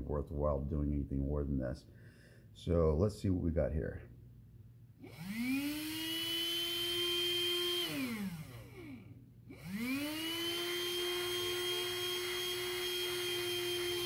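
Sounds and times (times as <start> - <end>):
small electric motor whining: 5.0 - 14.0.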